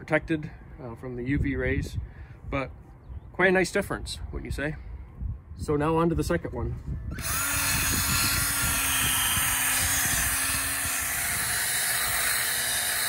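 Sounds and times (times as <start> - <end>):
drill spinning buffing pad: 7.1 - 13.0.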